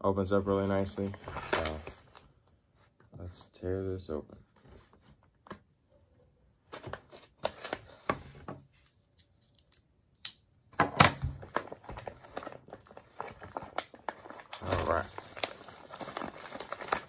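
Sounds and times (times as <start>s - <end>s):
plastic pouch crinkling: 11.4s - 17.0s.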